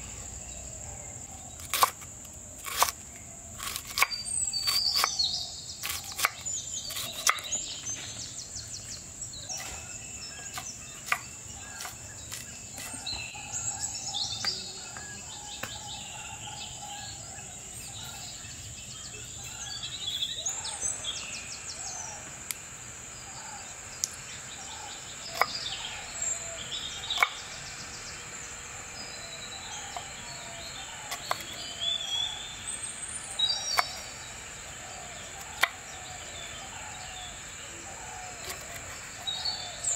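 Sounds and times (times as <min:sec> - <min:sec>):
birds chirping: 0:00.0 - 0:39.9
high-pitched insect drone: 0:00.0 - 0:39.9
knife chopping on wooden board: 0:05.8 - 0:07.5.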